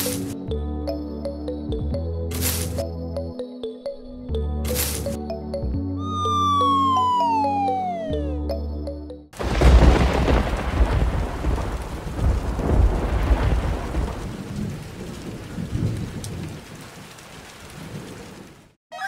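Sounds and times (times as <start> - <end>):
thunder rumbling: 9.4 - 18.7
steady rain: 9.4 - 18.8.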